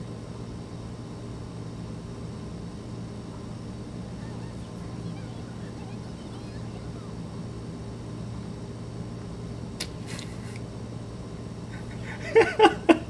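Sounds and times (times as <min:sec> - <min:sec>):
low electrical hum: 0:00.0 - 0:13.0
man laughing: 0:11.7 - 0:13.0.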